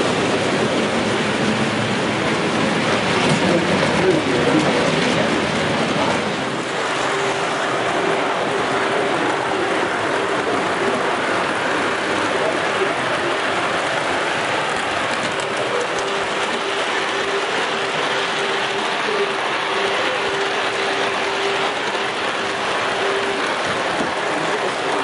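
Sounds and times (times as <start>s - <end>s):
model train wheels clattering: 14.4s - 25.0s.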